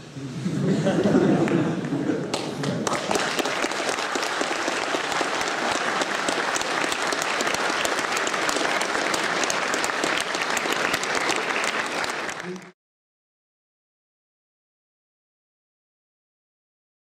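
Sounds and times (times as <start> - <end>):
audience applauding: 1.4 - 12.8
audience cheering: 2.8 - 12.8.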